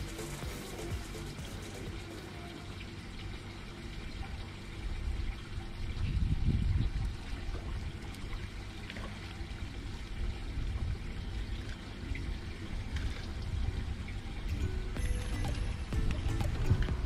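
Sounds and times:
water lapping against boat hull: 4.1 - 14.5.

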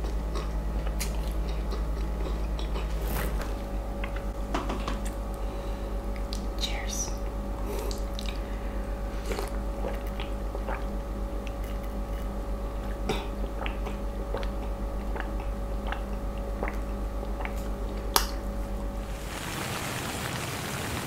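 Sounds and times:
steady low hum: 0.0 - 21.0
sipping and swallowing: 7.6 - 8.5, 9.2 - 18.4.

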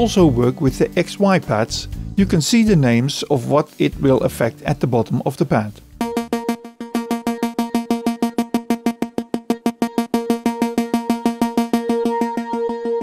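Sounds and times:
fast synth arpeggio: 6.0 - 13.0.

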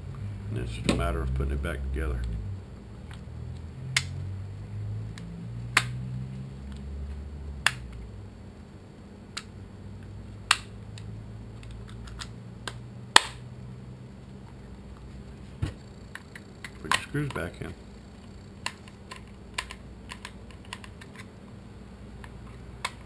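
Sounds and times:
plastic parts snapping together: 16.2 - 17.4, 18.6 - 21.3.

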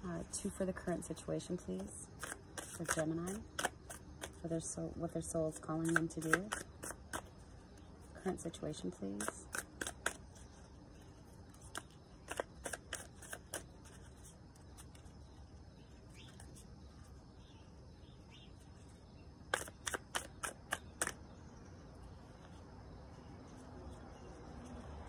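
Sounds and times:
cards being shuffled by hand: 1.8 - 4.4, 5.6 - 7.3, 9.1 - 10.5, 11.4 - 15.2, 19.5 - 21.2.

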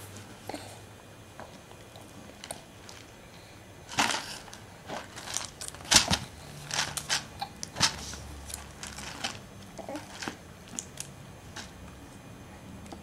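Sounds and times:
plastic canister crackling: 3.9 - 9.4.

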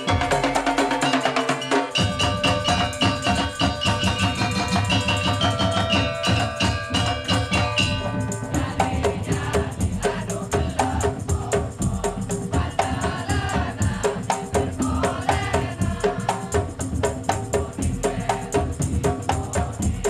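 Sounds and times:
tuned gongs ringing: 2.0 - 9.1
deep drum beat: 2.0 - 20.0.

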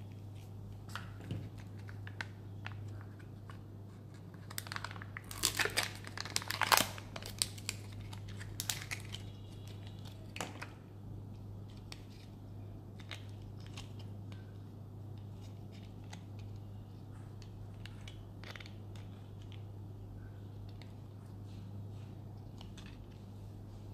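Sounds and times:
steady low hum: 0.0 - 23.9
plastic packaging crinkling: 0.4 - 10.7.

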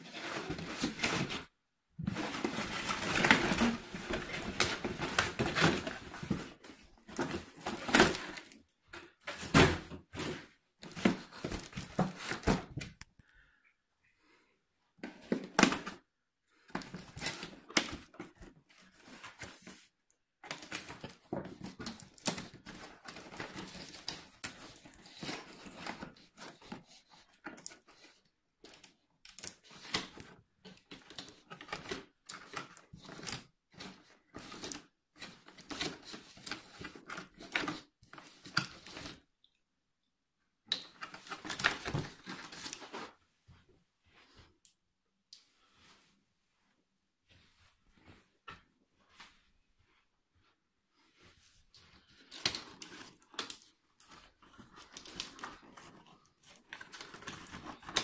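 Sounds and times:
cardboard packaging rustling: 0.0 - 13.0, 16.7 - 39.2, 40.9 - 43.2, 52.0 - 58.0.

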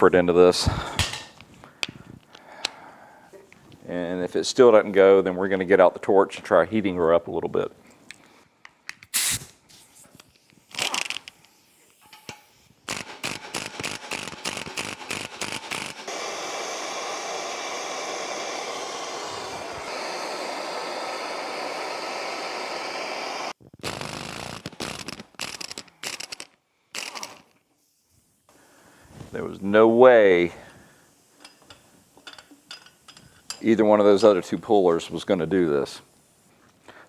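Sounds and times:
gas torch hissing: 9.1 - 27.5, 28.5 - 36.6.

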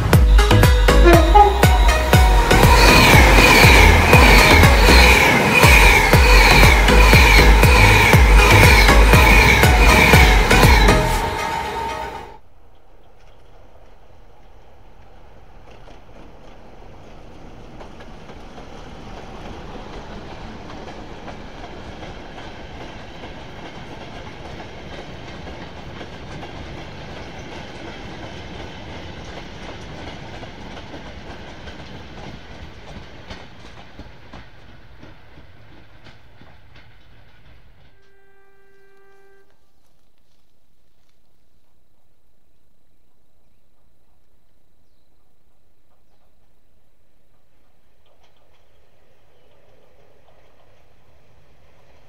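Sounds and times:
train wheels clacking over joints: 0.0 - 11.4, 13.0 - 38.2, 47.3 - 52.0
steady pitched tone: 0.0 - 12.4.

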